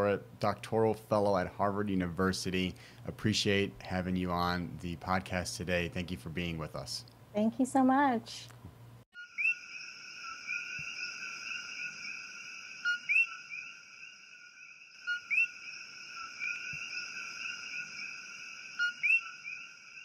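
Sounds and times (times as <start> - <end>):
two-note frog calls: 9.2 - 14.0, 14.6 - 20.0
frog chorus: 9.2 - 20.0.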